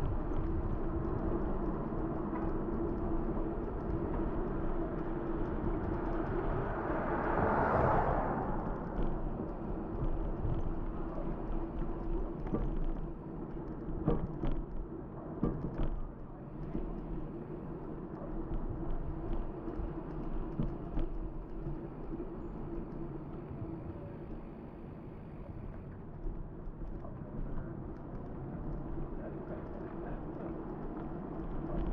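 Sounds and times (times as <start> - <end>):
tyres rolling on asphalt: 0.0 - 31.9
bicycle knocks and rattles: 13.8 - 16.1.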